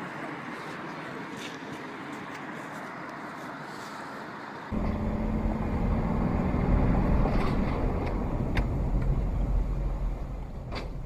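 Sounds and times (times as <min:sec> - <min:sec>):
car engine and road rumble: 0:00.0 - 0:11.0
steady hum: 0:04.7 - 0:10.7.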